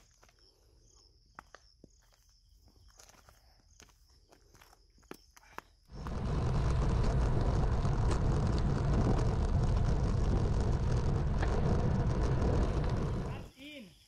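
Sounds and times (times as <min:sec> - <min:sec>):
wind rushing over microphone: 0:05.9 - 0:13.5.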